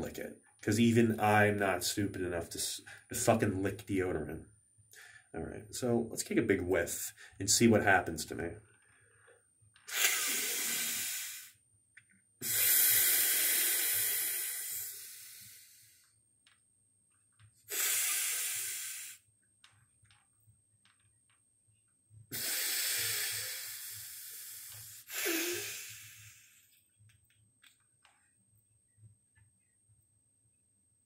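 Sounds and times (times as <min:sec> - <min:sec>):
man sniffing hard: 0:09.9 - 0:11.6, 0:12.4 - 0:16.0, 0:17.7 - 0:19.2, 0:22.3 - 0:26.7.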